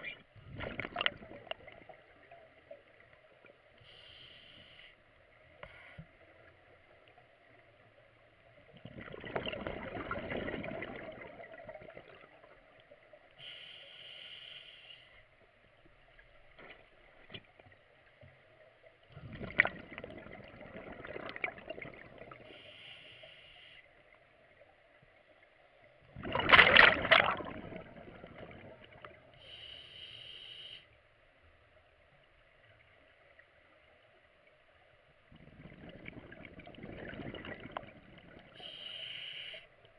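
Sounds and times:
exhaled bubbles rushing: 0:00.0 - 0:02.3, 0:08.7 - 0:12.8, 0:19.1 - 0:22.6, 0:26.1 - 0:29.2, 0:35.3 - 0:38.6
air hissing through regulator: 0:38.6 - 0:39.7.

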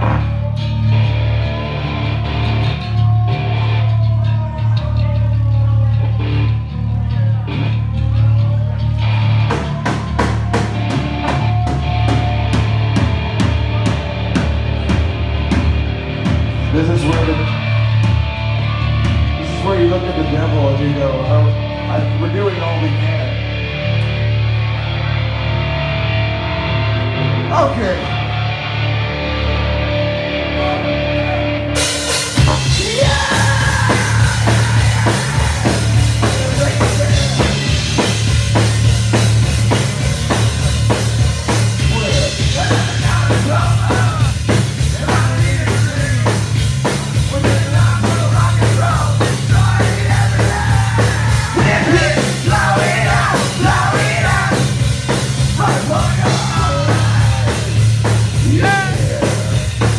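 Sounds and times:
drums: 0:00.0 - 0:59.9
electric guitars: 0:00.0 - 0:59.9
hard rock band playing live: 0:00.0 - 0:59.9
man singing: 0:32.4 - 0:38.2, 0:41.8 - 0:59.9.

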